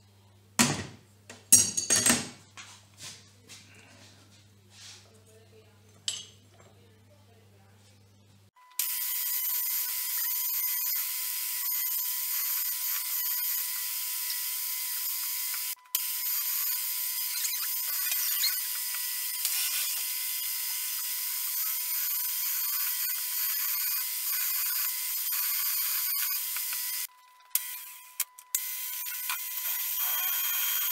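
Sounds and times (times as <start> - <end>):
drill cutting into metal: 8.8 - 30.9.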